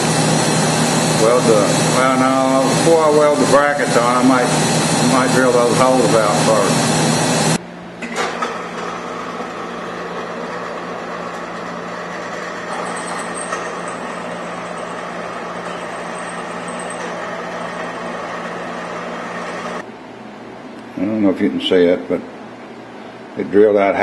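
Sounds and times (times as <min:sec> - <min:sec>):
drill press drilling steel: 0:00.0 - 0:07.6, 0:08.5 - 0:19.8.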